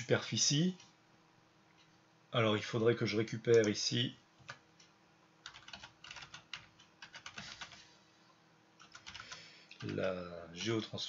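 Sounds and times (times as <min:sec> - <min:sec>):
computer keyboard typing: 0:05.4 - 0:07.8, 0:08.8 - 0:10.9.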